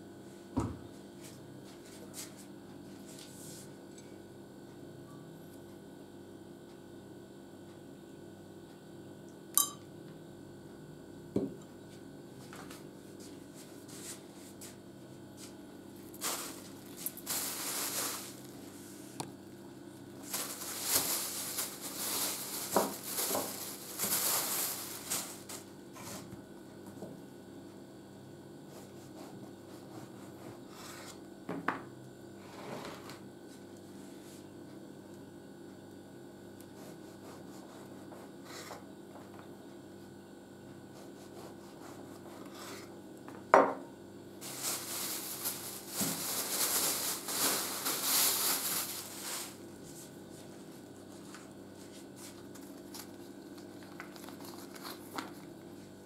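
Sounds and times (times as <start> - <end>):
faint steady hum: 0.0 - 56.0
metal spoon clinking on mug: 9.6 - 9.9
plastic bag rustling: 16.0 - 19.2, 20.1 - 25.7, 44.4 - 56.0
knife scraping bread on board: 28.7 - 31.2, 36.7 - 38.8, 40.9 - 42.9.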